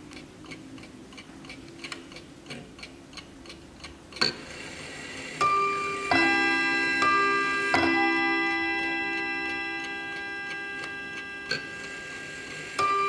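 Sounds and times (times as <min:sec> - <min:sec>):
clock ticking: 0:00.0 - 0:04.4, 0:05.4 - 0:13.0
clock chime: 0:05.4 - 0:13.0.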